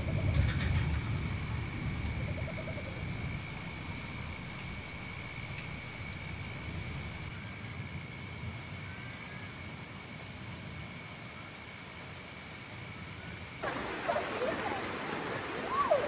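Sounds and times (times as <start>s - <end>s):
low steady rumble: 0.0s - 7.3s
steady rain falling: 0.0s - 16.0s.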